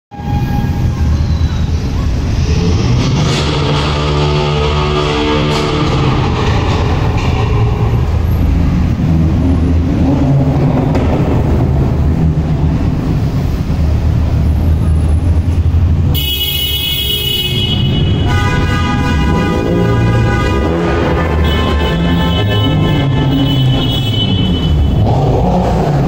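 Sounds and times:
car horn: 0.1s - 1.2s, 3.2s - 6.8s, 16.1s - 25.2s
car exhausts rumbling: 0.1s - 26.0s
engines blipping: 0.1s - 26.0s.

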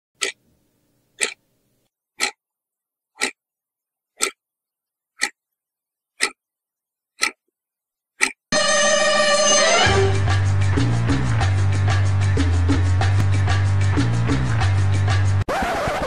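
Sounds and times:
clock ticking: 0.2s - 0.5s, 1.1s - 1.5s, 2.2s - 2.4s, 3.2s - 3.4s, 4.2s - 4.4s, 5.2s - 5.4s, 6.2s - 6.4s, 7.2s - 7.4s, 8.2s - 8.4s.

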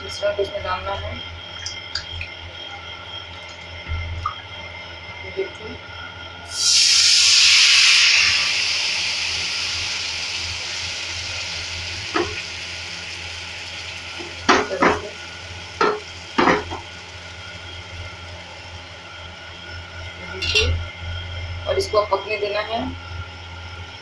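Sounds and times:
batter sizzling on a hot pan: 6.5s - 20.4s.

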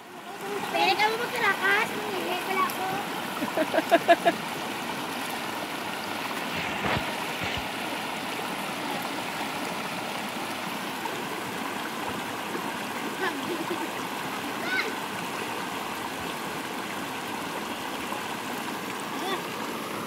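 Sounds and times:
river rushing over rocks: 0.0s - 20.0s
person laughing: 3.4s - 4.4s, 13.2s - 14.0s.

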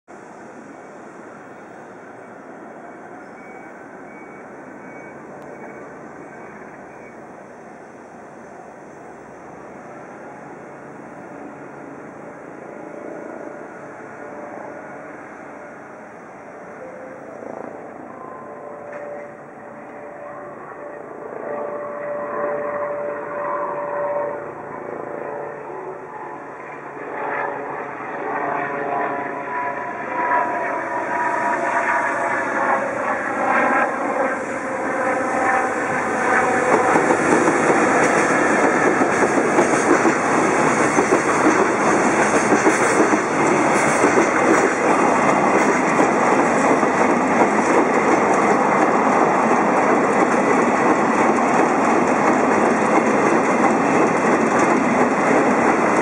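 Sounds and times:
electric locomotive passing: 0.1s - 56.0s
train wheels on rails: 0.1s - 56.0s
clickety-clack over rail joints: 35.0s - 56.0s.

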